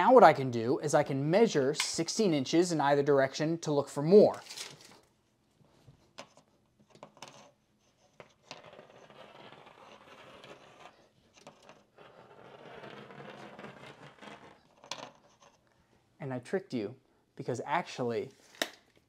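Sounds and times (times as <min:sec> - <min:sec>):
tape measure scraping on wall: 0:07.3 - 0:15.6.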